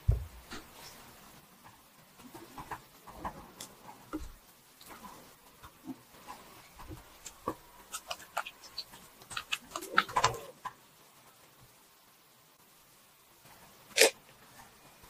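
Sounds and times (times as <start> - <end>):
spatula folding sticky dough: 2.2 - 10.8.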